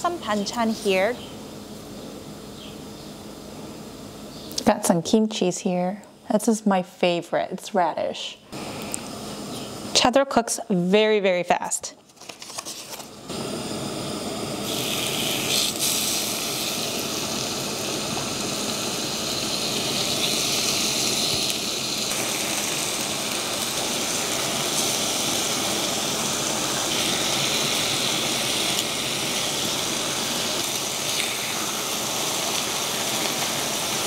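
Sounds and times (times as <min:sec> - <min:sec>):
meat sizzling on grill pan: 0:13.3 - 0:34.0.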